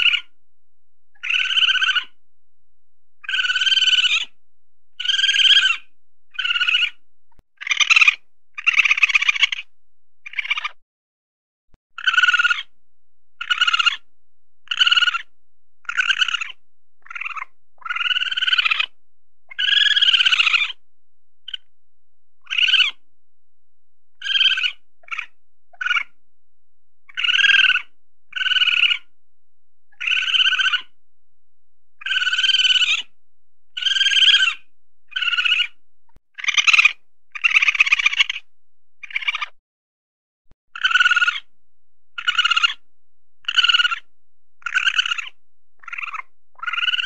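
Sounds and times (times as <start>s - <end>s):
weasel squealing calls: 0.0s - 0.4s, 1.2s - 2.2s, 3.2s - 4.4s, 5.0s - 7.0s, 7.6s - 9.7s, 10.3s - 10.8s, 12.0s - 12.7s, 13.4s - 14.1s, 14.7s - 20.8s, 21.5s - 21.7s, 22.4s - 23.0s, 24.2s - 26.2s, 27.1s - 29.1s, 29.9s - 31.0s, 32.0s - 33.1s, 33.8s - 35.8s, 36.4s - 39.6s, 40.7s - 41.5s, 42.2s - 42.8s, 43.4s - 47.0s.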